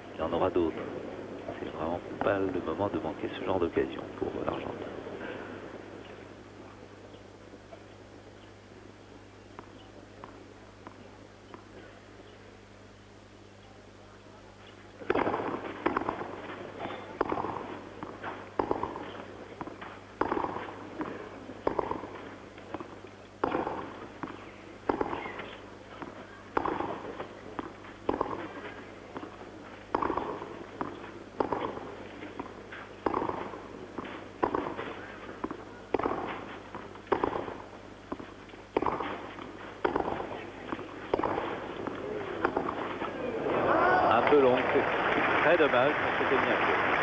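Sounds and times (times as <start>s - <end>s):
low recording hum: 0.0s - 47.0s
racket striking tennis ball: 15.0s - 43.6s.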